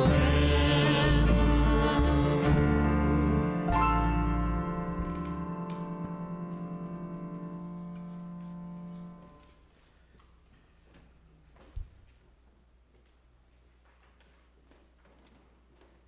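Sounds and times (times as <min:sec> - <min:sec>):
band chord ringing out: 0:02.4 - 0:09.4.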